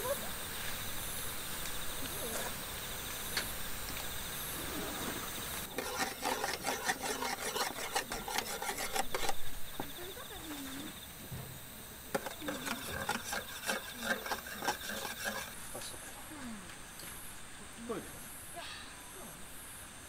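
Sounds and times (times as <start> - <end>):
insects trilling: 0.0 - 20.0
utensil scraping steel bowl: 5.7 - 9.5, 12.1 - 16.2.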